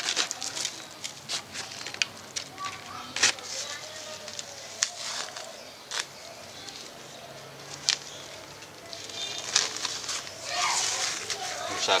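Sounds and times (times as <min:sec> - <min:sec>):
hand scraping soil: 0:08.9 - 0:12.0.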